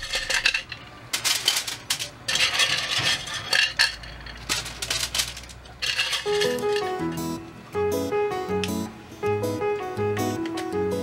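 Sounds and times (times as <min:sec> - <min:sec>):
aluminium foil crinkling: 0:00.0 - 0:06.8
clam shells clattering: 0:00.0 - 0:06.9.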